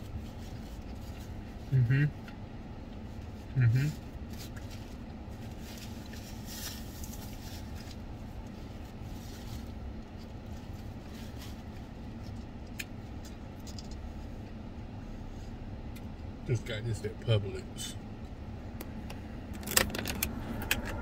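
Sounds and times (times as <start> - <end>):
car engine hum inside cabin: 0.0 - 21.0
paper napkin rustling: 4.3 - 12.4.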